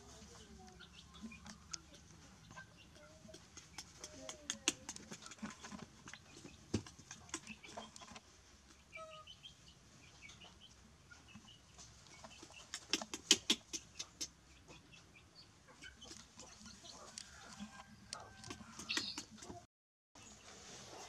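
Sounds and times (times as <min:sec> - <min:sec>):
faint animal chirps and clucks: 0:00.0 - 0:21.0
sharp taps and clicks: 0:02.9 - 0:07.5, 0:12.7 - 0:14.4.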